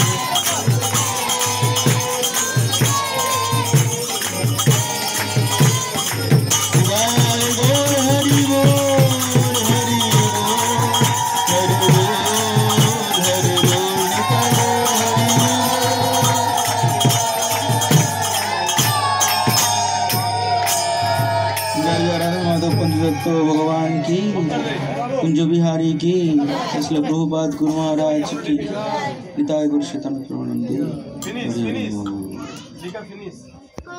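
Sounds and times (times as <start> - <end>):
small hand cymbals beat: 0.0 - 24.0
man singing into microphone: 6.6 - 18.1.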